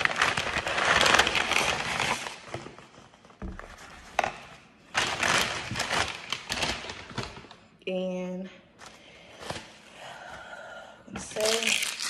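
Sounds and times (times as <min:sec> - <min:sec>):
paper bag rustling: 0:00.0 - 0:04.3, 0:04.9 - 0:07.6.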